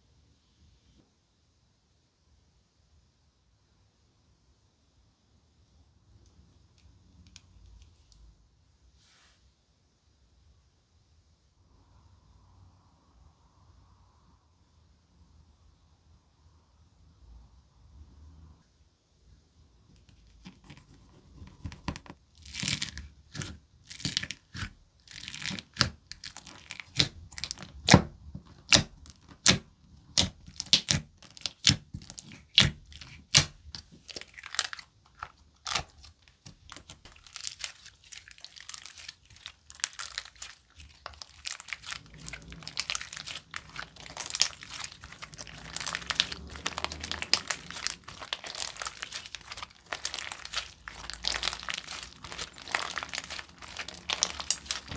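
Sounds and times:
slime clicking pops and crackles: 0:22.4 - 0:33.5, 0:34.1 - 0:54.9.

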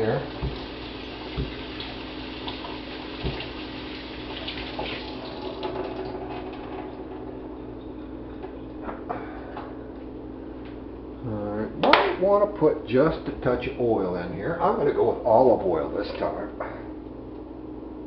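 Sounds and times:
tap water running: 0:00.0 - 0:08.8.

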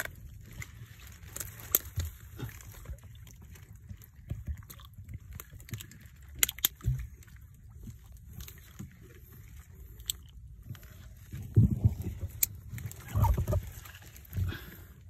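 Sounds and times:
rustling and crackling of grass: 0:00.0 - 0:04.5, 0:10.6 - 0:14.7.

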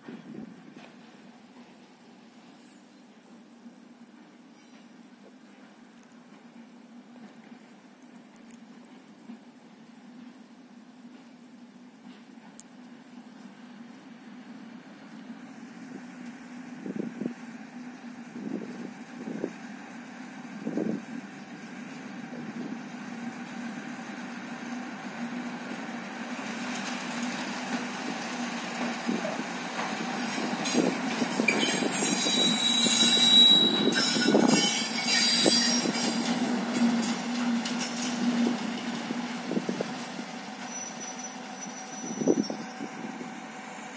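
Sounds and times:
rail vehicle engine drone: 0:00.0 - 0:43.9
wheels squealing on rails: 0:15.4 - 0:43.9.

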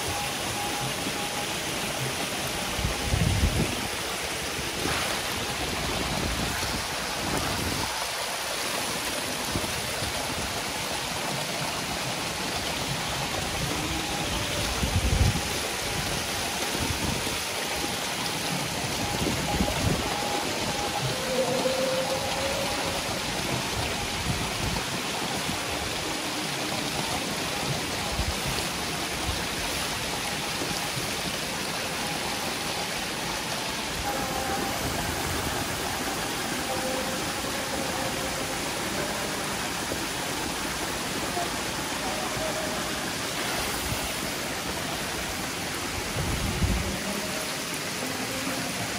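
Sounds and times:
fish thrashing and splashing water: 0:04.7 - 0:06.0.

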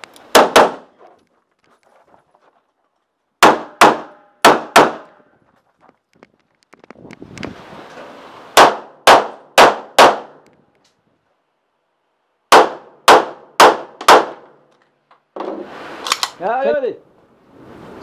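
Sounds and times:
pistol shots: 0:00.3 - 0:00.9, 0:03.4 - 0:05.2, 0:08.6 - 0:10.4, 0:12.5 - 0:14.6
rustle of movement: 0:01.0 - 0:03.3.

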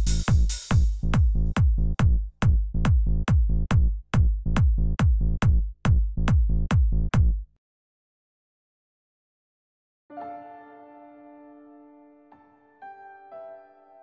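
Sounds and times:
electronic kick drum beat: 0:00.0 - 0:07.6.

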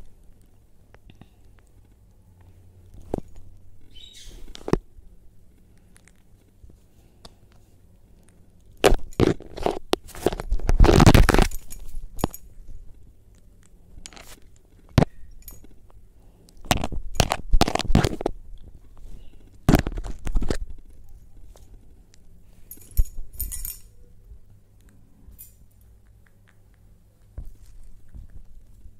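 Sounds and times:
parrot beak crunching: 0:05.5 - 0:06.6, 0:25.7 - 0:28.9.

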